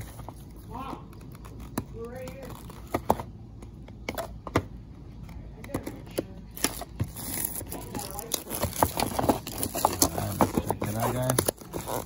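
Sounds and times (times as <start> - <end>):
plastic rustling: 6.5 - 12.0
cardboard box being opened: 6.6 - 12.0.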